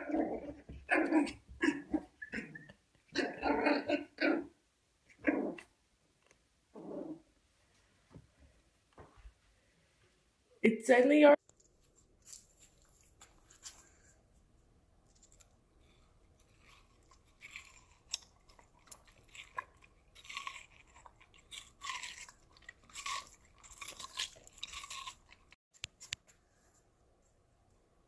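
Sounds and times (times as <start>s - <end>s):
dog crunching food: 15.1s - 26.2s.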